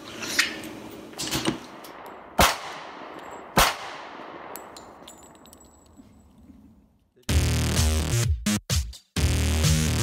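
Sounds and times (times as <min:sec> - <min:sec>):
pistol shots echoing: 0:01.9 - 0:05.5.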